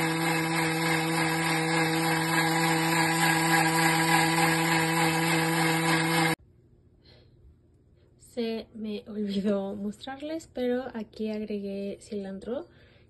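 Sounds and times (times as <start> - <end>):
blender motor hum: 0.0 - 6.4
churning rush of blending: 0.0 - 6.4.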